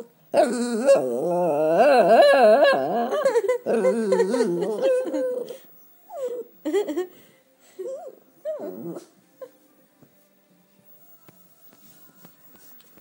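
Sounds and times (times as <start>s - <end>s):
small dog moaning and whining: 0.4s - 6.5s, 7.8s - 9.5s.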